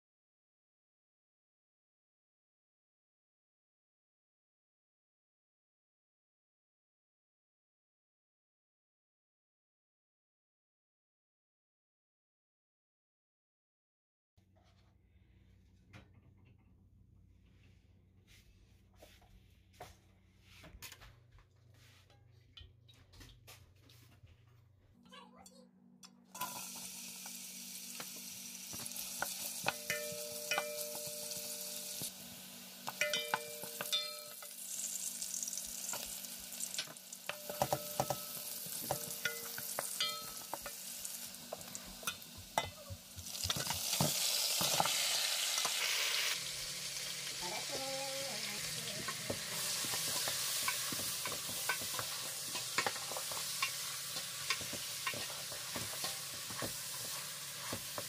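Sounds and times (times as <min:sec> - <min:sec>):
onions sizzling in hot oil: 0:26.3 - 0:58.0
wooden spoon scraping pot: 0:47.7 - 0:58.0.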